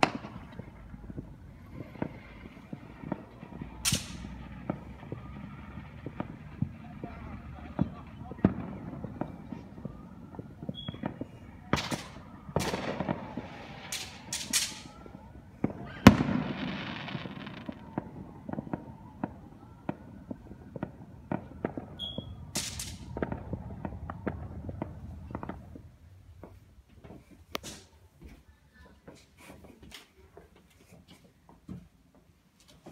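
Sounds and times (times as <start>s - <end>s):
fireworks bangs and crackles: 0.0s - 28.0s
fireworks hissing bursts: 1.4s - 7.7s, 11.6s - 15.0s.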